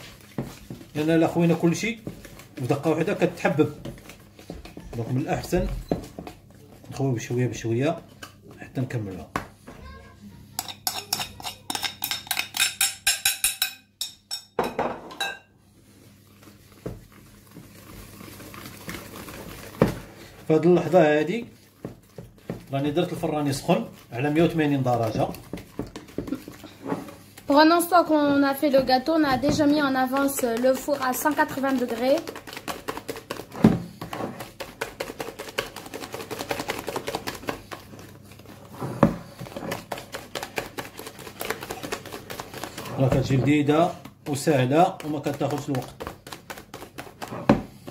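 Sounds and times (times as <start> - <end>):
whisk clicking against plastic bowl: 28.2 - 38.1, 39.4 - 47.9.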